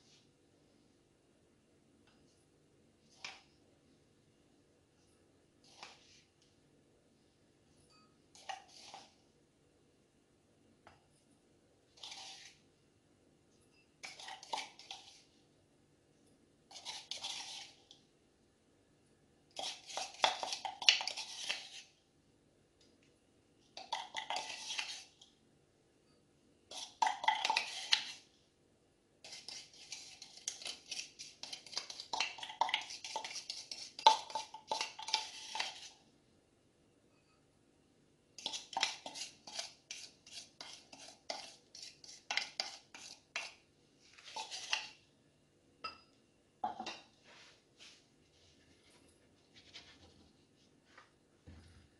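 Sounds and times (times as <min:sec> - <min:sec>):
spoon scraping a bowl: 0:07.9 - 0:09.2, 0:11.9 - 0:12.7, 0:13.7 - 0:15.4, 0:16.7 - 0:18.0, 0:19.6 - 0:22.0, 0:23.8 - 0:25.3, 0:26.7 - 0:28.3, 0:29.2 - 0:36.0, 0:38.4 - 0:43.6, 0:44.2 - 0:45.0.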